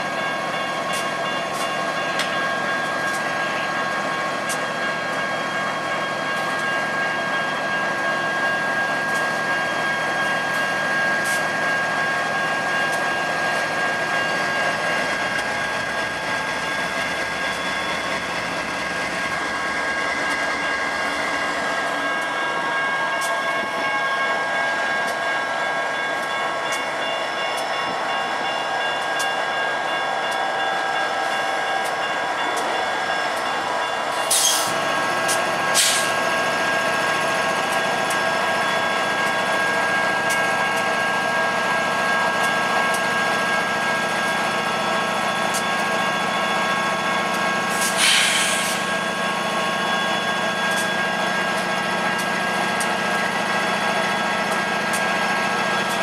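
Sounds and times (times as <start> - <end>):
diesel locomotives rumbling: 0.0 - 56.0
short sharp hiss bursts: 47.8 - 48.8.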